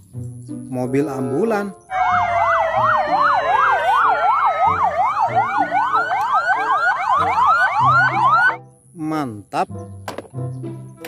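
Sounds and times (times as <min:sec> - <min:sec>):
ambulance sirens: 0:01.9 - 0:08.6.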